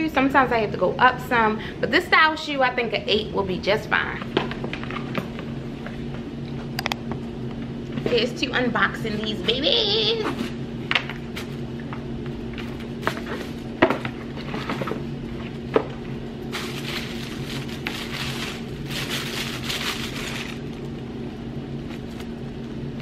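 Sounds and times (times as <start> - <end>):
steady low hum: 0.0 - 23.0
paper wrapping rustling: 16.4 - 20.9.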